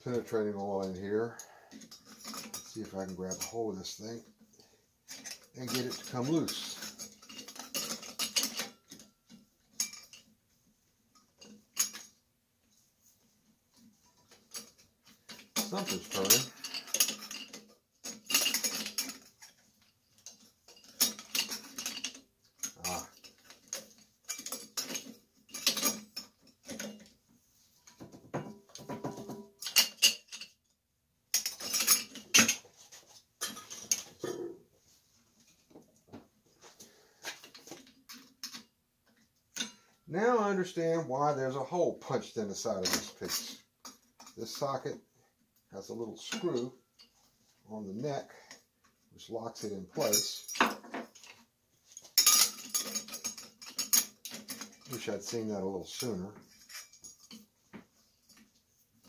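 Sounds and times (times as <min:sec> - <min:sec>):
metal tools clinking: 0:00.1 - 0:04.4, 0:05.1 - 0:10.3, 0:11.2 - 0:12.2, 0:13.8 - 0:27.2, 0:27.8 - 0:30.6, 0:31.3 - 0:34.6, 0:37.2 - 0:40.0, 0:42.6 - 0:45.0, 0:45.9 - 0:47.3, 0:49.3 - 0:59.0
metal clicking and scraping: 0:05.1 - 0:10.3, 0:13.7 - 0:27.2, 0:49.6 - 0:57.5.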